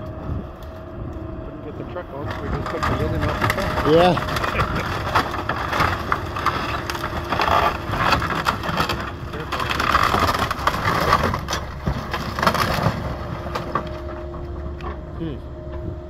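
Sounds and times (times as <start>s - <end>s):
excavator engine hum: 0.0s - 16.0s
timber cracking and splintering: 2.1s - 15.1s.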